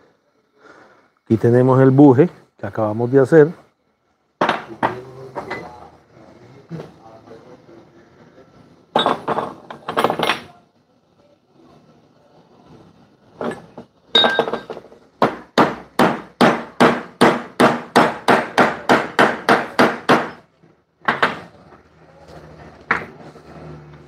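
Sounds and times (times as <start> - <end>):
ringing metal clink: 13.4 - 14.8
hammer striking steel: 14.2 - 20.5
knocks: 21.0 - 21.5.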